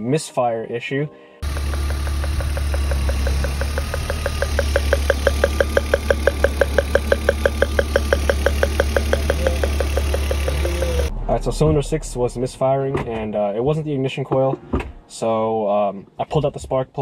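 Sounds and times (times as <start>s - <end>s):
car engine idling with ticking: 1.4s - 11.1s.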